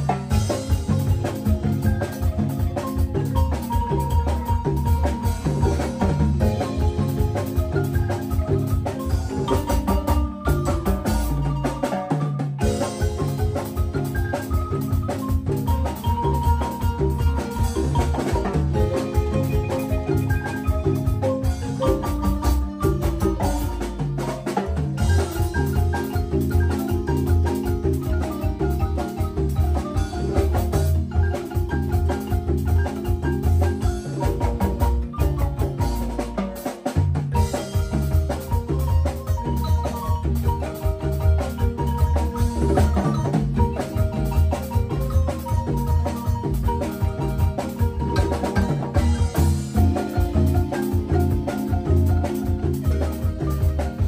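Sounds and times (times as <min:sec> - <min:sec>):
drum kit: 0:00.0 - 0:54.0
marimba ensemble playing: 0:00.0 - 0:54.0.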